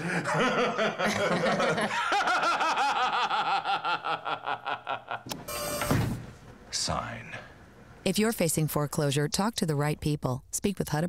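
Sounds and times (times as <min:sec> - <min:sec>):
person laughing rhythmically: 0:00.0 - 0:05.4.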